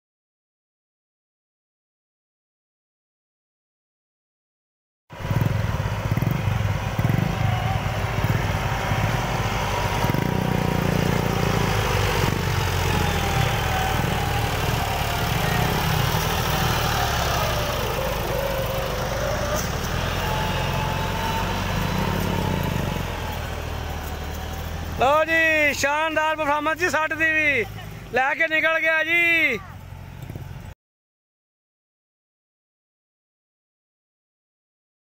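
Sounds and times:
tractor diesel engine under load: 0:05.1 - 0:30.8.

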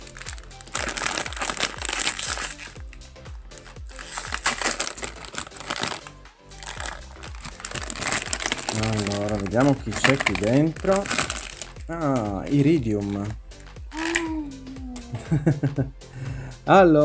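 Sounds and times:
plastic packet crinkling: 0:00.0 - 0:02.9, 0:03.5 - 0:12.4
background music: 0:00.0 - 0:17.0.

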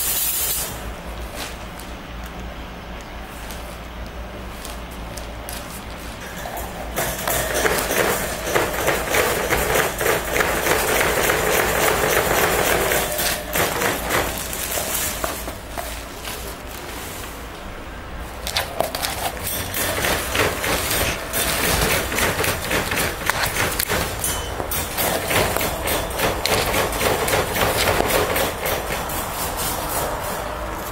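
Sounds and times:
plastic sheeting crinkling: 0:12.8 - 0:18.9.

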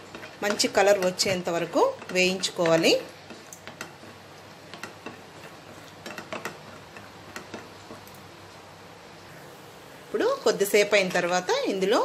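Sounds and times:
spatula and nuts clicking in pan: 0:00.0 - 0:08.3.

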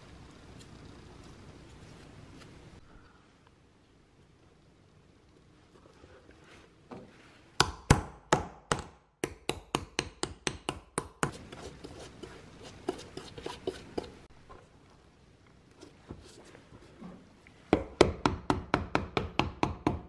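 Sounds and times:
brush rubbing cement: 0:11.3 - 0:14.3.

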